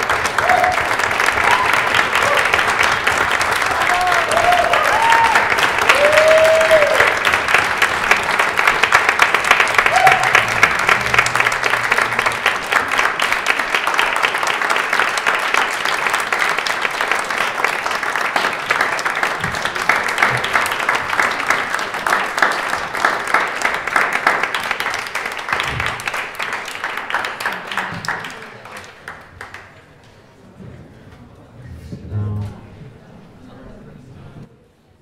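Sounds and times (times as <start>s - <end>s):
audience applauding: 0.0s - 30.0s.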